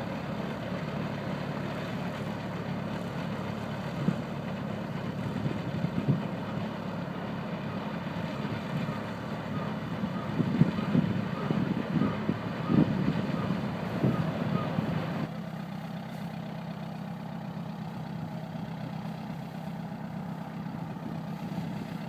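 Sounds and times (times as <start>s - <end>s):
tractor engine humming: 0.0s - 22.0s.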